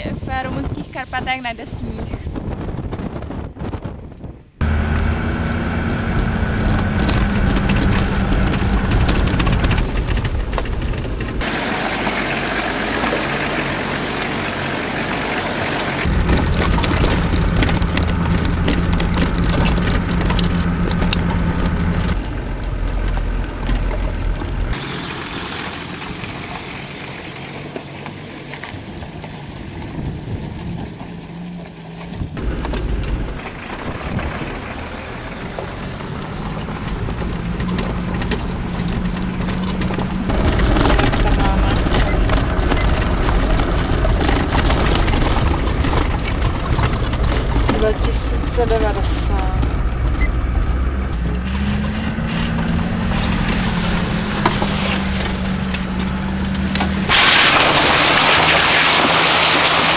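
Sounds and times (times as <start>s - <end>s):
off-road vehicle engine hum: 0.0s - 59.9s
rushing noise: 38.5s - 59.9s.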